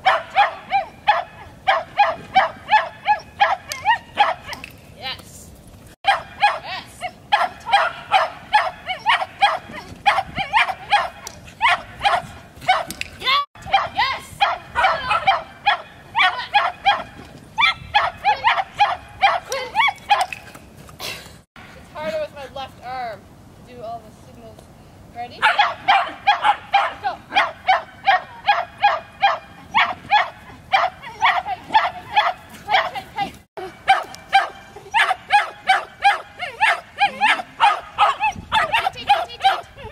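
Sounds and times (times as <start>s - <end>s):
dog barking: 0.0s - 4.6s, 6.1s - 6.7s, 7.3s - 12.9s, 13.7s - 17.1s, 17.9s - 19.5s, 25.4s - 33.0s, 33.8s - 39.9s.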